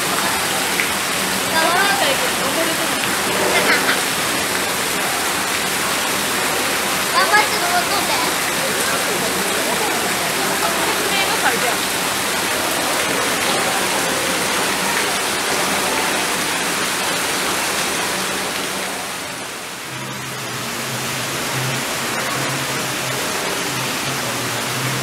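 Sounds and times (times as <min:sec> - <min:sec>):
steady rushing noise: 0:01.1 - 0:13.2.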